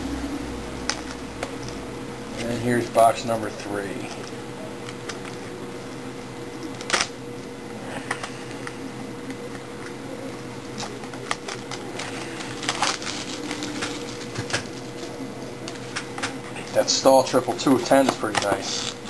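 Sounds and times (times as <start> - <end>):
faint steady hum: 0.0 - 19.0
foil packs crinkling and tearing: 10.8 - 15.1, 16.6 - 19.0.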